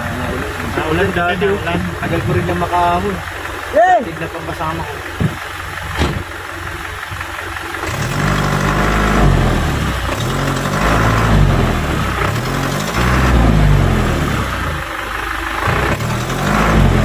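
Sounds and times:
truck engine revving: 0.0 - 17.0
dull knock: 5.2 - 6.3.

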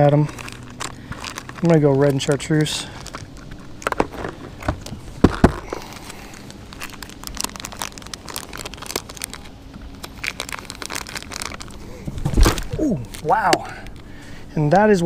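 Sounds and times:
plastic bag crinkling: 0.0 - 14.3.

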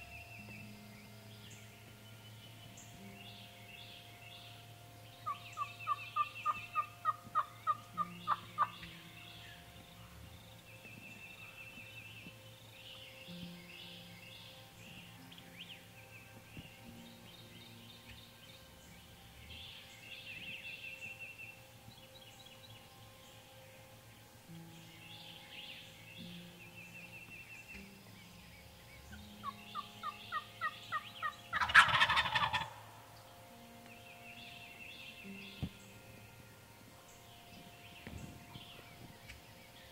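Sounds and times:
songbird singing faintly: 0.0 - 39.9
wild turkey yelping: 5.2 - 8.8, 29.4 - 32.9.

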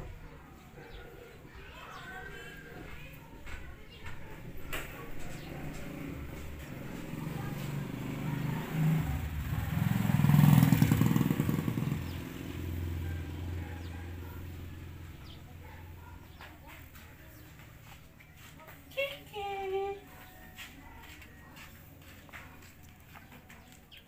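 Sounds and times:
vehicle engine passing by: 0.0 - 24.0.

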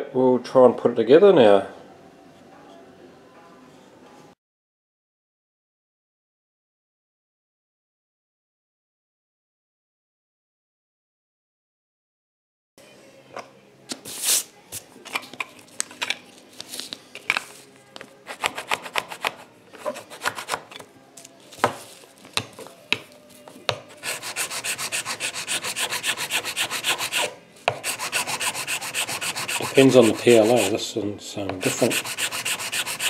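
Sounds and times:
file rasping on plastic: 18.3 - 20.6, 23.9 - 30.8, 31.6 - 33.0.

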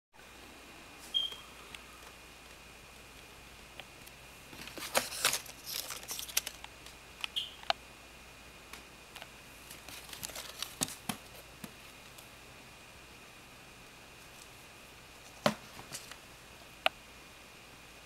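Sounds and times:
faint high whine: 0.2 - 10.6
crinkly rustling and clicks: 4.0 - 7.0, 9.2 - 12.3.

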